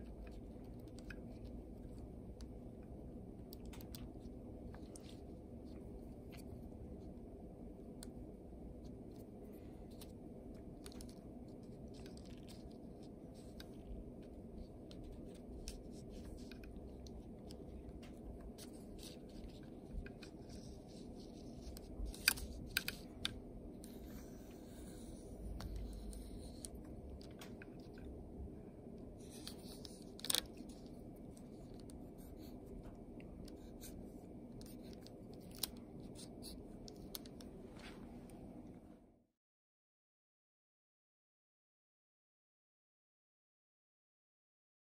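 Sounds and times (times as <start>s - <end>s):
steady low hum: 0.0s - 39.2s
pencil tapping and scratching paper: 8.0s - 28.1s.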